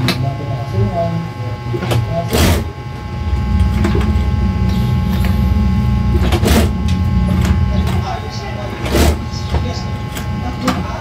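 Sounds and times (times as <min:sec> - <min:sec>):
sewing machine running: 0:06.1 - 0:06.7.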